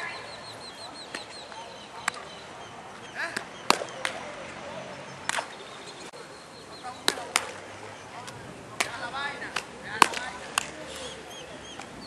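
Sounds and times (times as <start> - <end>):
sharp cracks: 3.3 - 4.3, 5.3 - 5.6, 7.0 - 11.1.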